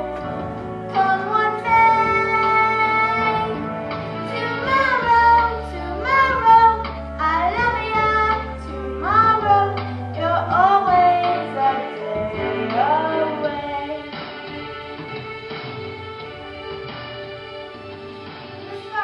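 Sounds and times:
instrumental accompaniment: 0.0s - 19.0s
girl singing: 0.9s - 3.6s, 4.2s - 14.2s.

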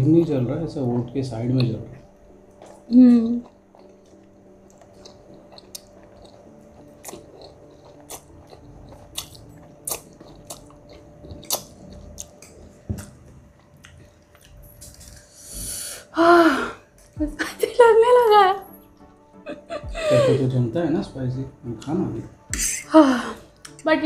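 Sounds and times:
people chewing and slurping: 0.9s - 17.2s.

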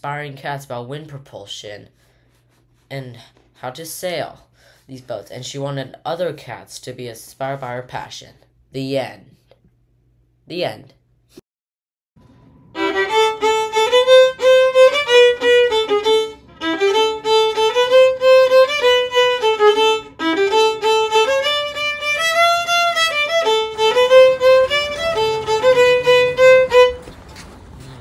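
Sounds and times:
solo violin melody: 12.7s - 27.1s.

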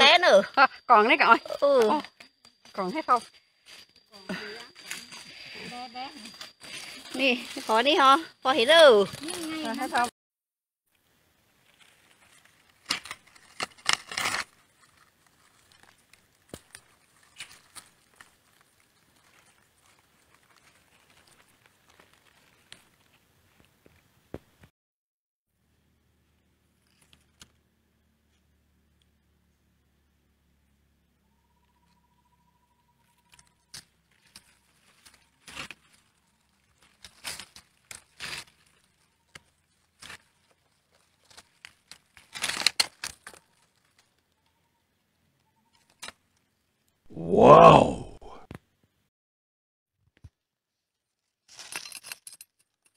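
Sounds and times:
digging in pebbly soil: 0.0s - 10.1s, 11.5s - 23.8s, 33.0s - 45.1s, 50.7s - 52.8s
grit and pebbles clicking: 11.6s - 24.0s, 33.1s - 44.5s.

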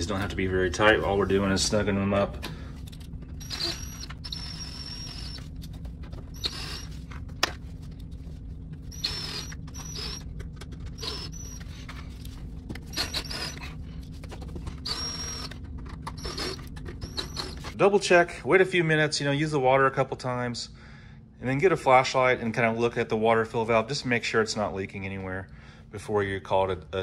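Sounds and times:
steady low hum: 0.0s - 27.0s
cordless drill whining: 3.4s - 5.5s, 6.3s - 7.0s, 8.9s - 10.2s, 11.0s - 11.7s, 12.9s - 13.7s, 14.8s - 17.8s.

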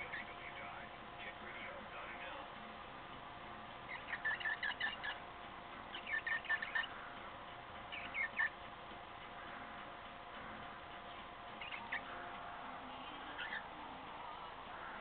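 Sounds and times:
cockatiel chirping: 0.0s - 0.7s, 3.9s - 5.2s, 5.9s - 7.0s, 7.9s - 8.6s, 11.6s - 12.2s, 13.0s - 13.7s.

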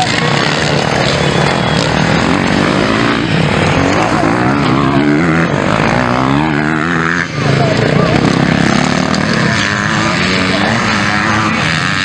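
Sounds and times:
motocross bike engines revving: 0.0s - 12.0s.

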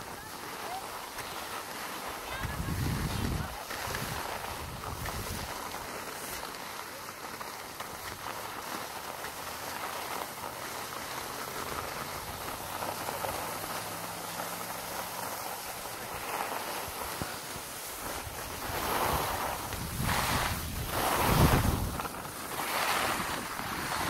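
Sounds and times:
skis sliding over snow: 0.0s - 24.0s
wind on microphone: 2.3s - 5.7s, 18.0s - 24.0s.

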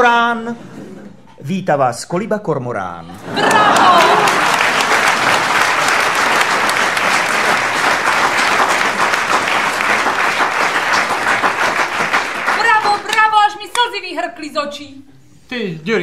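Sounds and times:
crowd applauding: 3.2s - 13.9s.

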